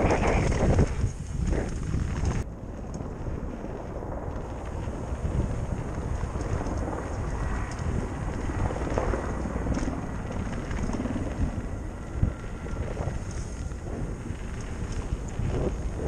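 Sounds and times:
bike rattling: 0.0 - 16.0
wind on microphone: 0.0 - 16.0.

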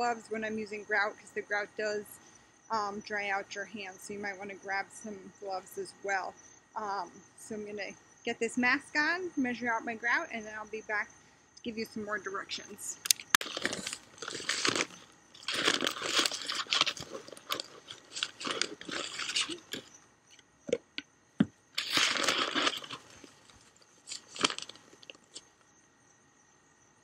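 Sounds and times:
bag crinkling and rustling: 13.2 - 20.0, 21.8 - 25.5.

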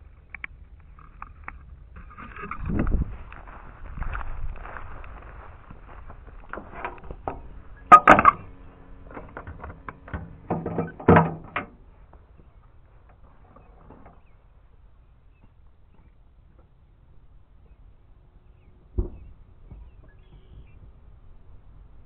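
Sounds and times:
loud knocks and clattering thumps: 9.1 - 11.7, 19.0 - 20.0.

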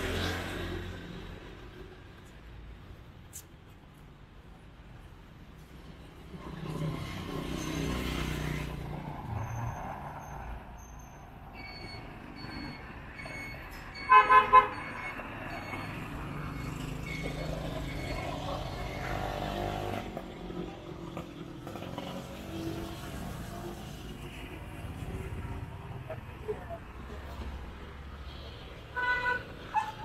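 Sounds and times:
street traffic passing: 0.0 - 30.0
vehicle horn tooting: 14.1 - 14.8, 29.0 - 30.0.

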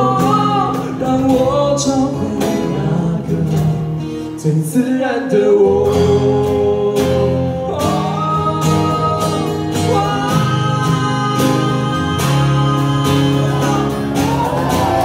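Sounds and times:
acoustic and electric guitars: 0.0 - 15.0
person singing: 0.0 - 15.0
cajon beat: 7.9 - 15.0.

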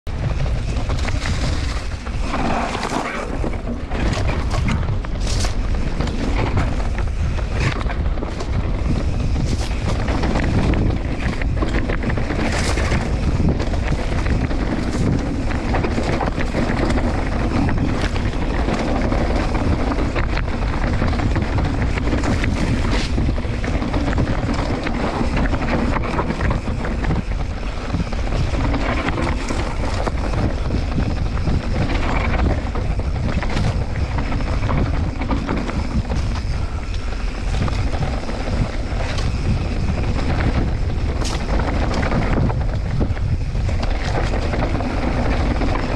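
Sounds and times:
wind buffeting microphone: 0.0 - 45.9
bike clattering over rough ground: 0.1 - 45.9
tyre rumble: 0.1 - 45.9.

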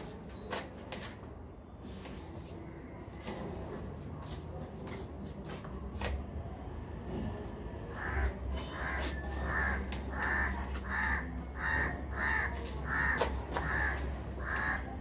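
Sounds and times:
crows cawing: 7.9 - 15.0.

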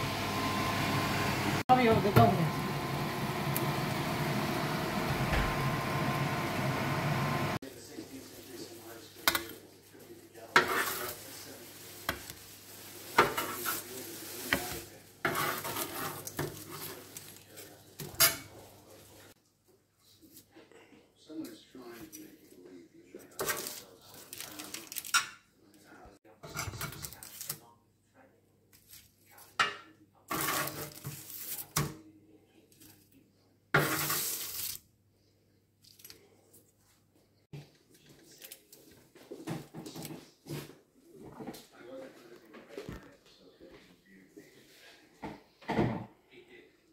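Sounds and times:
metal spatula scraping tray: 10.5 - 11.2, 13.1 - 17.1, 30.3 - 31.8, 33.8 - 34.6.

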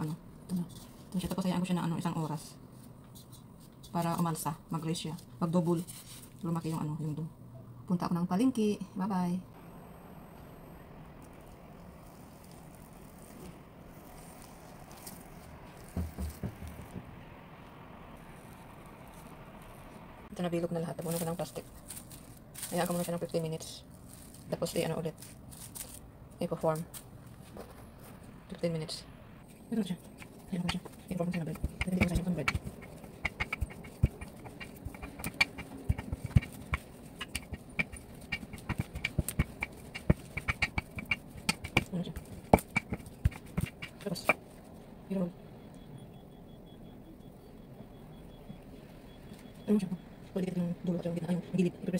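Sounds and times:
faint background noise: 0.0 - 51.9
fingers pressing dough thumps: 15.8 - 17.0, 30.1 - 44.4
rolling pin clicking and knocking: 30.2 - 44.4.

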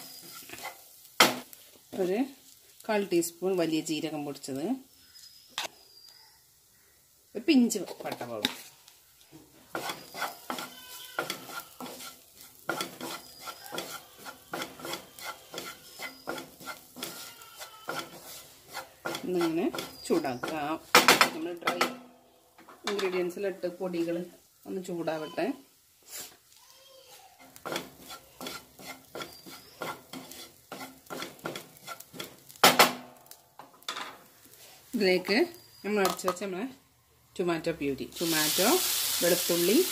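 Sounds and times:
spatula scraping frying pan: 0.0 - 2.8, 9.6 - 21.9, 25.0 - 26.5, 27.4 - 33.4
onions and spices sizzling: 0.0 - 39.9.

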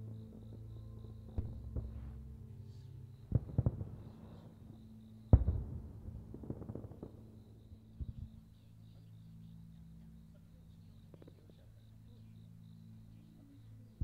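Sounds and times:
crackling firework pops: 3.3 - 4.5, 5.3 - 8.4.

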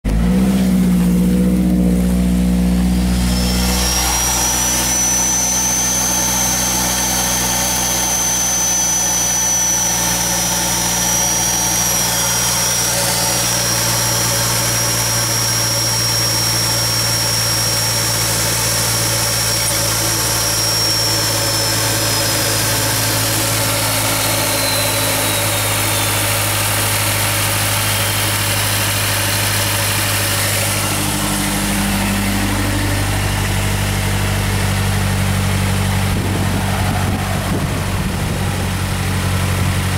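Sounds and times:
car engine idling: 0.0 - 39.9
thin high whistle: 2.6 - 34.9.

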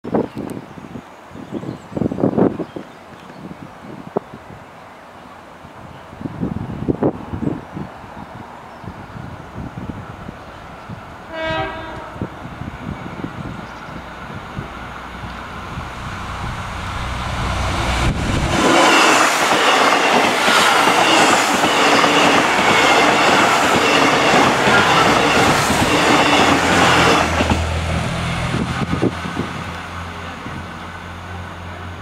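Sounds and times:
train rumble: 10.8 - 32.0
wheel and rail noise: 11.9 - 32.0
diesel engines humming: 13.8 - 19.5.

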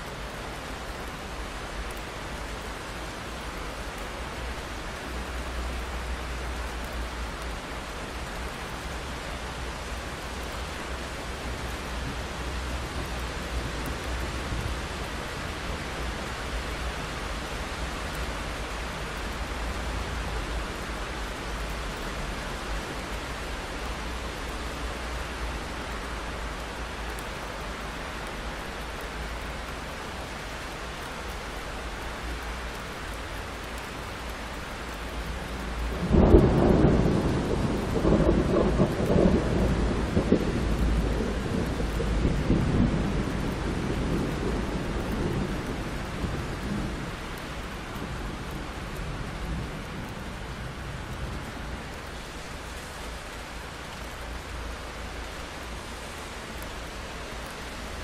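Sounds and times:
steady rain: 0.0 - 58.0
thunder cracking and rumbling: 35.9 - 50.1.

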